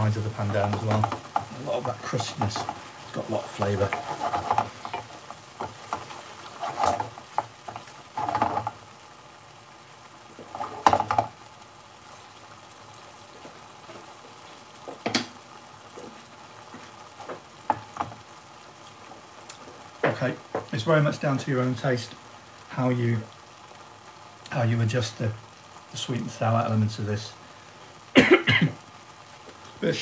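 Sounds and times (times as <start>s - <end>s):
wooden spoon scraping pan: 0.0s - 8.8s, 10.4s - 11.3s
sauce sizzling: 0.0s - 30.0s.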